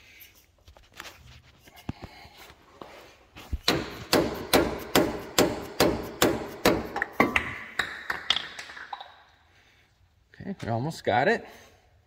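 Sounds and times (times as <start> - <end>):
mallet striking metal tool: 3.7 - 7.5.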